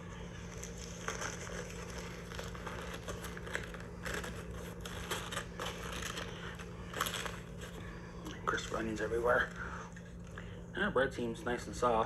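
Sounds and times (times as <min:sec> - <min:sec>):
paper wrapper crinkling: 0:00.1 - 0:09.6.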